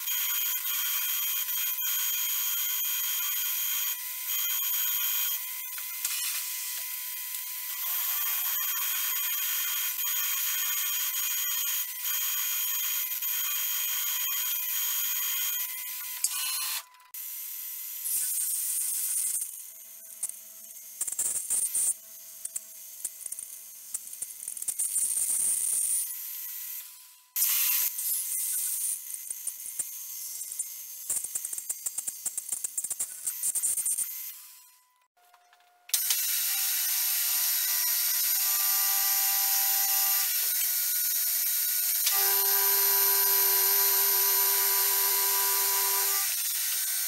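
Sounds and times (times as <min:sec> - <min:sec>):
drill boring into steel whine: 0:00.0 - 0:16.8, 0:36.0 - 0:47.0.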